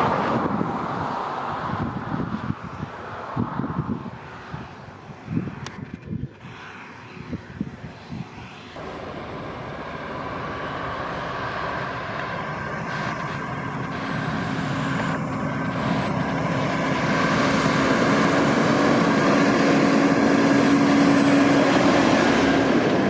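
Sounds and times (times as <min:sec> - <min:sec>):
tractor engine hum: 0:00.0 - 0:23.0
faint high whine: 0:05.7 - 0:22.5.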